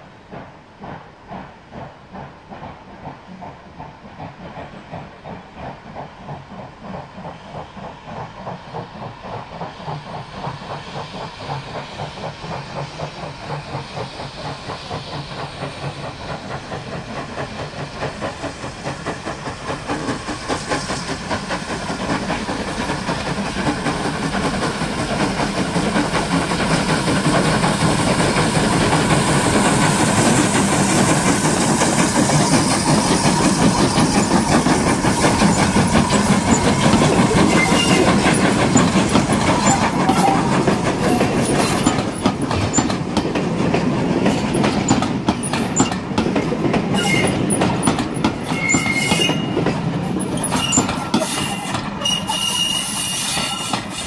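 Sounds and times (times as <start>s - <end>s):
steam locomotive exhaust beats: 0.0s - 54.0s
train wheels clacking over rail joints: 0.1s - 54.0s
wheel squeals: 35.2s - 39.0s, 46.9s - 47.6s, 48.4s - 49.6s, 50.2s - 54.0s.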